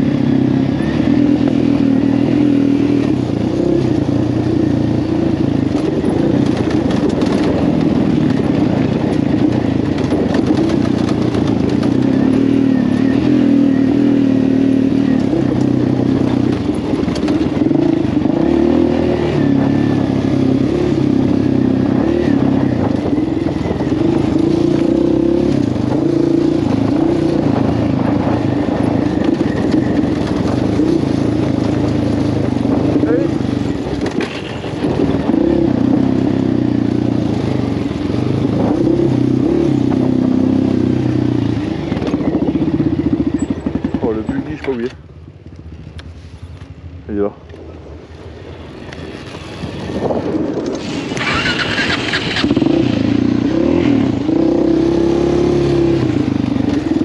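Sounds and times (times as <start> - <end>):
quad bike engine: 0.0 - 57.0
rattling clatter: 5.7 - 12.4.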